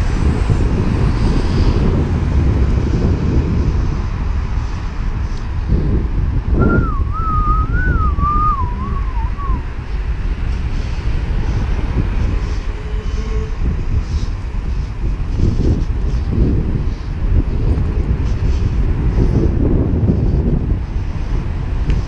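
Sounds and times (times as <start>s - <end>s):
city traffic: 0.0s - 22.0s
wind rumbling on microphone: 0.0s - 22.0s
person whistling a wavering tune: 6.6s - 9.6s.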